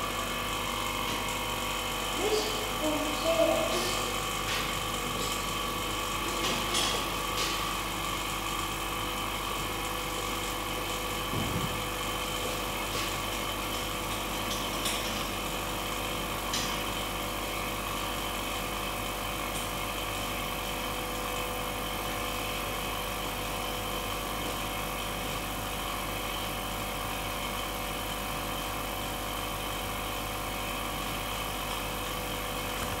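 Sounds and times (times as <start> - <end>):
vacuum pump humming: 0.0 - 33.0.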